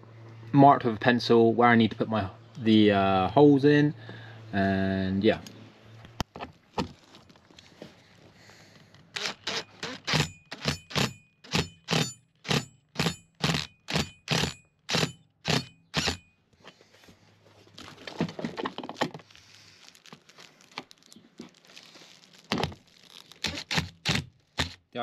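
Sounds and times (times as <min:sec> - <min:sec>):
impact driver hammering bolt: 0:09.2 - 0:16.2.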